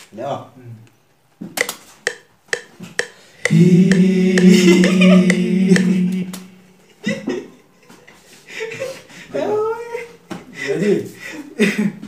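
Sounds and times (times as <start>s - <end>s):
sharp clicks: 1.6s - 5.0s
man singing long note: 3.5s - 6.6s.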